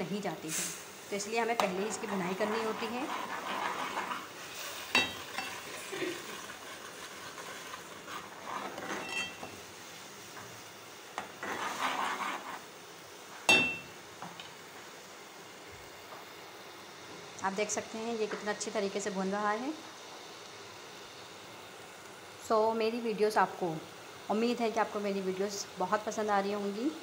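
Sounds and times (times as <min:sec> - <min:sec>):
paste sizzling in oil: 0:00.0 - 0:27.0
metal spoon scraping pot: 0:01.6 - 0:04.3, 0:04.9 - 0:09.5, 0:11.4 - 0:12.6.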